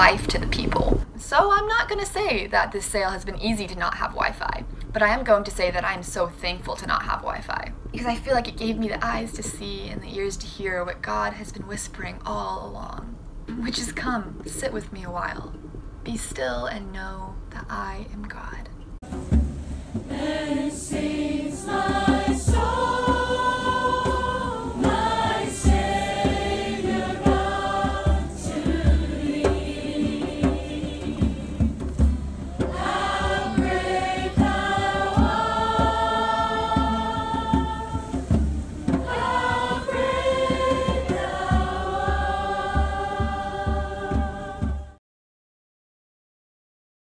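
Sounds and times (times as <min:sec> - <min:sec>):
crowd singing worship song: 0:19.8 - 0:45.0.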